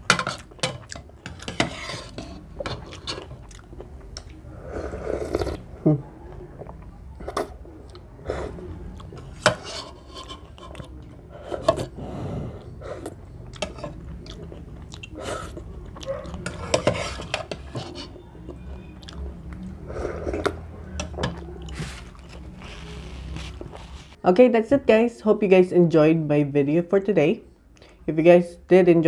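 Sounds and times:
close-up chewing: 0.2s - 9.4s, 12.6s - 24.2s
spoon scraping ceramic bowl: 1.3s - 3.3s, 9.4s - 10.8s, 16.4s - 18.2s.

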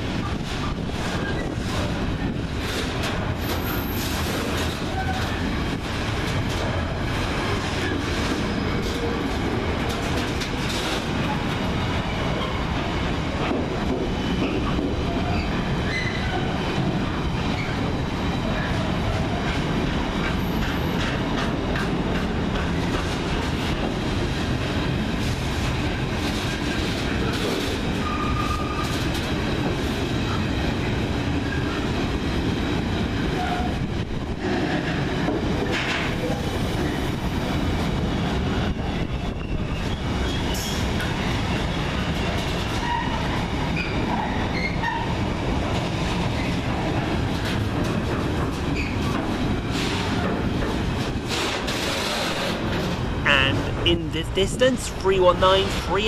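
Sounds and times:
train wheels clattering over rail joints: 0.2s - 11.5s, 19.4s - 30.0s, 46.4s - 53.1s.

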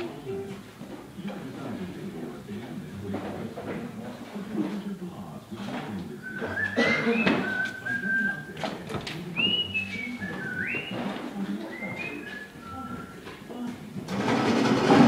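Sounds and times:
person whistling a tune: 6.3s - 8.4s, 9.4s - 11.1s, 11.7s - 13.2s.

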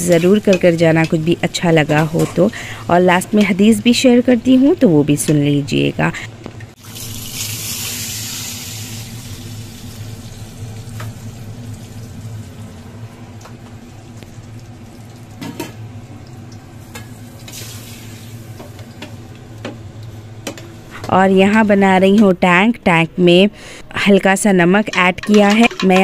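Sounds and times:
oil sizzling: 0.0s - 4.8s, 6.7s - 21.6s.

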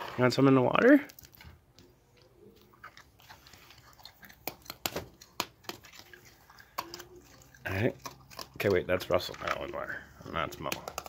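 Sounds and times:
raccoon chewing dry kibble: 1.0s - 11.0s.

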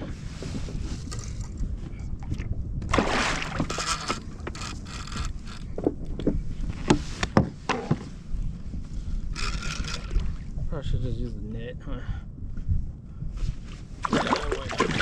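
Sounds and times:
wind and water rumble: 0.0s - 15.0s
water splash: 2.9s - 3.8s, 14.0s - 15.0s
gear clicks and knocks: 3.7s - 7.0s, 9.4s - 10.2s.

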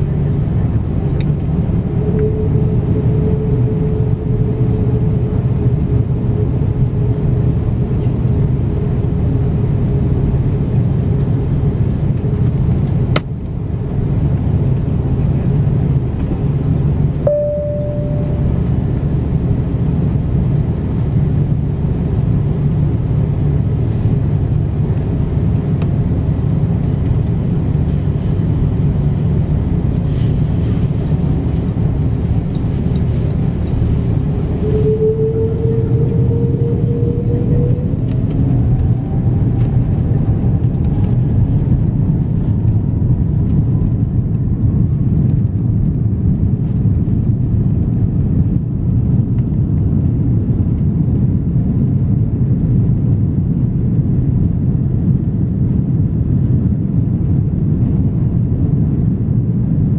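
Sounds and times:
aircraft cabin rumble: 0.0s - 59.9s
brief steady tone: 17.2s - 18.8s.

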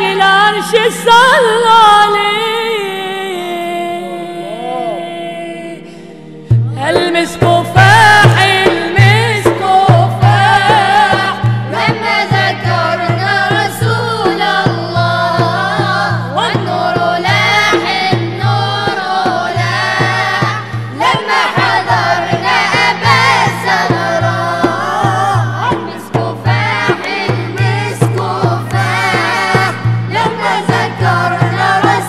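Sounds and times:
group singing devotional song: 0.0s - 32.0s
frame drum beating: 6.5s - 32.0s.

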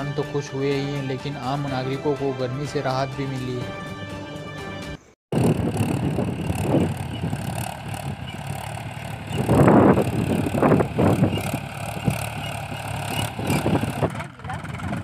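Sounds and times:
tractor diesel engine running: 5.3s - 15.0s.

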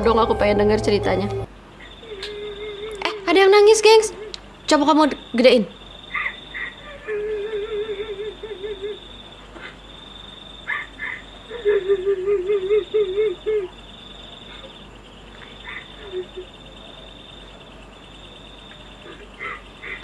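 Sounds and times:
cricket trill: 1.5s - 20.0s
wavering sob-like wail: 6.9s - 9.0s.

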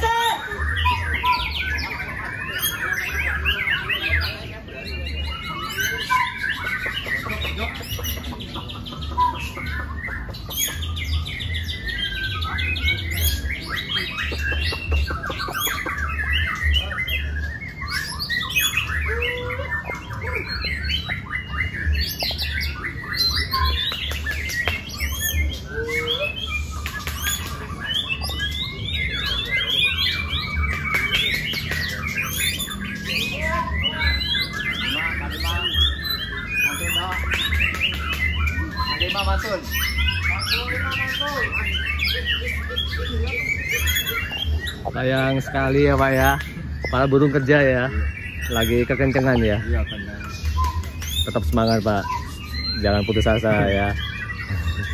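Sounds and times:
many songbirds singing: 0.0s - 54.9s.

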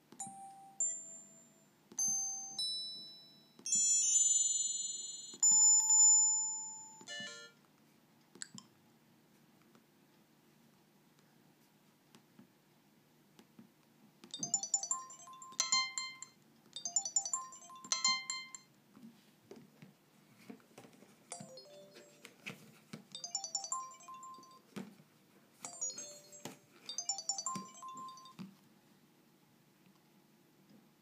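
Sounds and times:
phone electronic chime tone: 2.0s - 7.5s, 14.4s - 18.6s, 21.3s - 22.2s, 23.2s - 24.6s, 25.7s - 28.4s.

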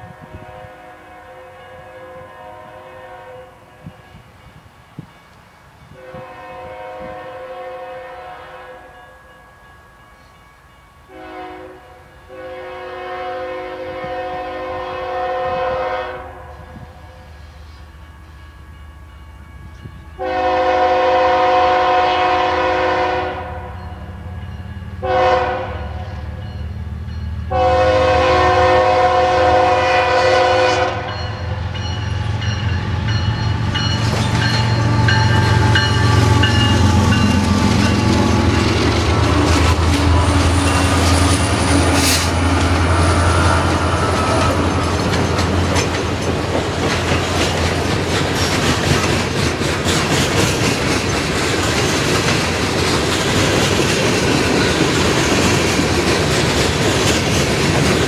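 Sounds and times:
locomotive air horn blasts: 0.1s - 4.1s, 6.0s - 9.1s, 11.1s - 17.2s, 20.2s - 23.8s, 25.0s - 26.0s, 27.5s - 31.3s
train wheels clacking on rails: 31.1s - 58.0s.

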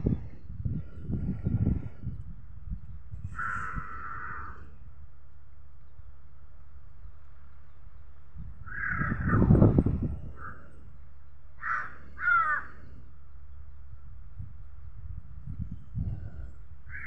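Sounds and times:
crows cawing: 3.3s - 4.8s, 8.7s - 10.8s, 11.6s - 13.0s.

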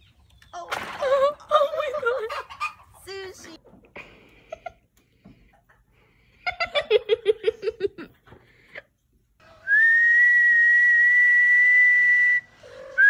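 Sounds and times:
person laughing: 6.5s - 8.2s
long whistled note: 9.6s - 12.5s.

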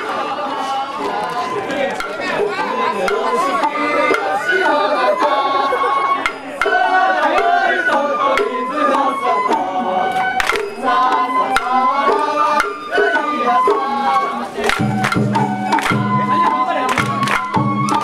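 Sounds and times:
bamboo flute melody: 2.0s - 18.0s
taiko drum strokes: 6.2s - 8.7s, 14.6s - 18.0s.

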